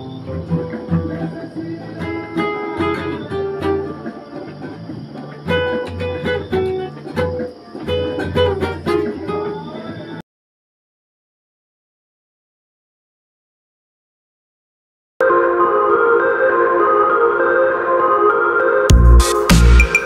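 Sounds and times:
acoustic guitar strummed and plucked: 0.0 - 10.2.

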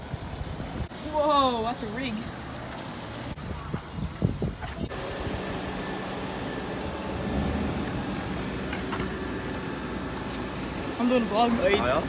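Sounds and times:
vehicle engine running: 4.8 - 12.0.

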